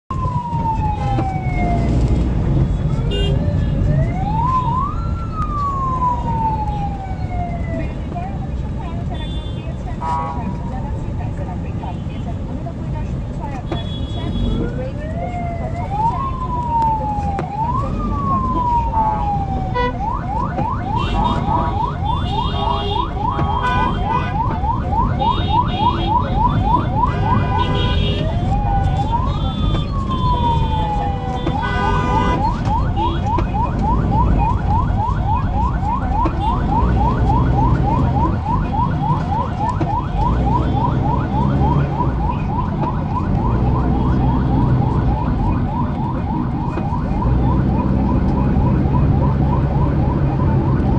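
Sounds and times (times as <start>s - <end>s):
emergency siren wailing and yelping: 0.1s - 9.2s, 14.5s - 50.9s
traffic rumble: 0.1s - 50.9s
car horn blasts: 27.1s - 28.2s, 31.5s - 32.4s.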